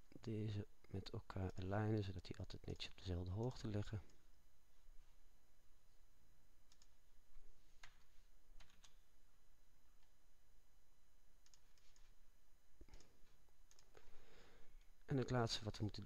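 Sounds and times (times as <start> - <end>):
faint computer mouse clicks: 6.7 - 7.0, 11.4 - 12.1, 13.7 - 14.0.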